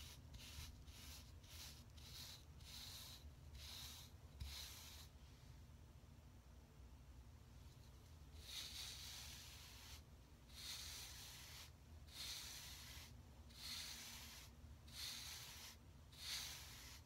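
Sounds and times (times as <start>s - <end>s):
brush stroking through hair: 8.3s - 17.0s.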